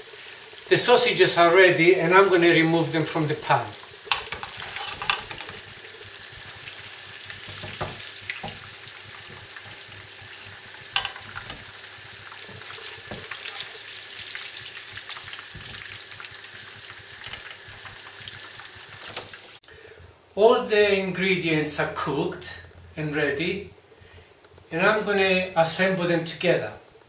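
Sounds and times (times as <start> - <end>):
oil sizzling in frying pan: 0.0 - 19.6.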